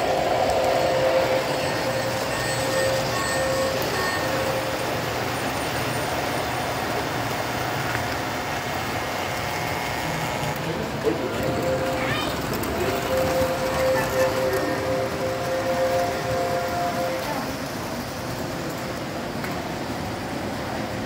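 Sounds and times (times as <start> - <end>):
held tone: 0.0 - 5.0, 11.1 - 17.5
model trains rumbling on track: 0.0 - 21.0.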